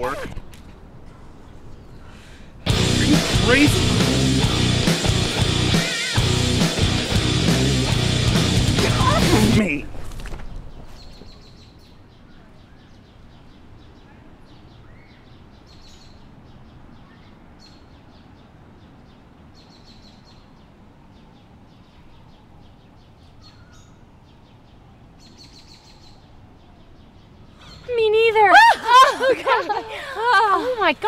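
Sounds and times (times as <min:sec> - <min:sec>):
small birds chirping: 0:10.4 - 0:28.5.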